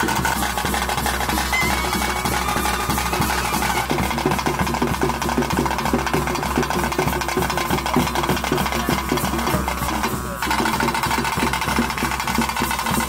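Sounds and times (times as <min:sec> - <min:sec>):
reed pipe held tone: 0:00.0 - 0:12.1
fast drumming: 0:00.0 - 0:13.0.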